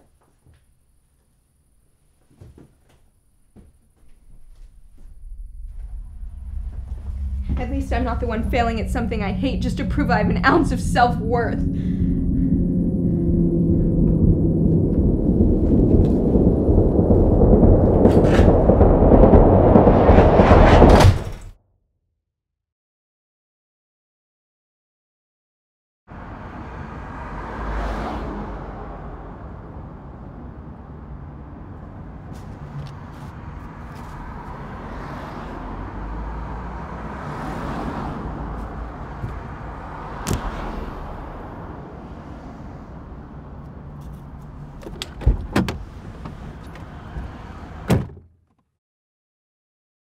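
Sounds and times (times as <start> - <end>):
traffic passing: 3.1 - 20.9, 26.1 - 47.9
low rumble inside car: 4.1 - 20.4
sharp knocks and thuds: 47.9 - 48.3.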